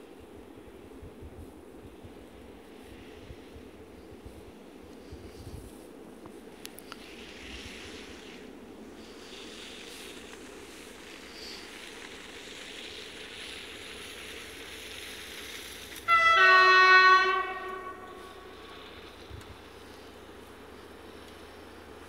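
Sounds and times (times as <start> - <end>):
steady background hiss: 0.0 - 22.0
train horn blast: 16.0 - 19.1.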